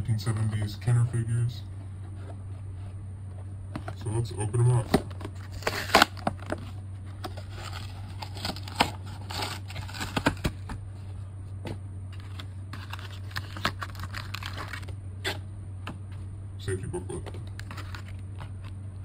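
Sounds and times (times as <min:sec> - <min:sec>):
plastic packaging crinkling: 0:05.3 - 0:06.7, 0:07.3 - 0:10.7, 0:12.2 - 0:15.0, 0:17.5 - 0:18.7.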